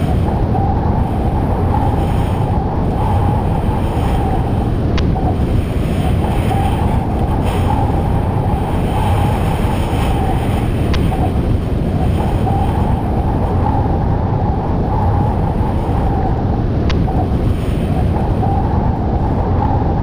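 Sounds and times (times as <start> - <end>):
wind rushing over microphone: 0.0 - 20.0
snowboard sliding through snow: 1.2 - 13.7.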